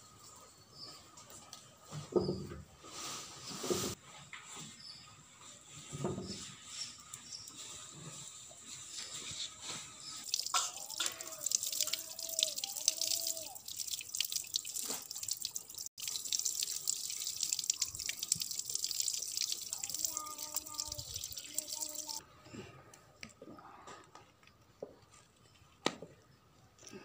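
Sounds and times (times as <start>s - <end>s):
water pouring from a tap: 10.2s - 22.2s
water splashing on concrete floor: 10.2s - 22.2s.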